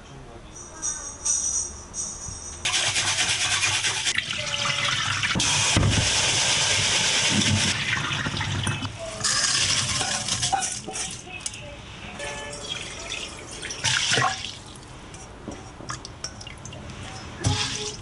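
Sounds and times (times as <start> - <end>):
tap water running into metal bowl: 3.6 - 10.6.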